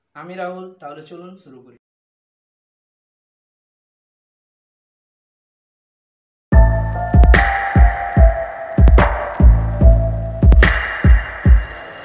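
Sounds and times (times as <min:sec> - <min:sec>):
kick drum beat: 0:06.6 - 0:11.8.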